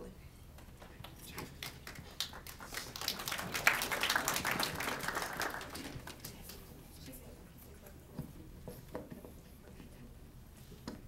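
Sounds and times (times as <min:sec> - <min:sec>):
small audience clapping: 0:00.6 - 0:06.7.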